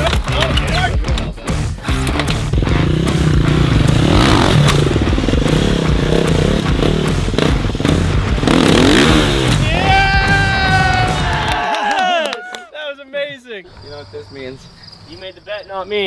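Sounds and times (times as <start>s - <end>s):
dirt bike engine revving: 1.8s - 10.4s.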